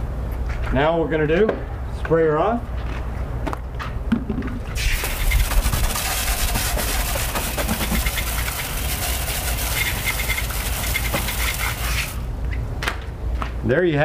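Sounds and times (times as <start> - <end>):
hose spray on car wheel: 4.8 - 12.3.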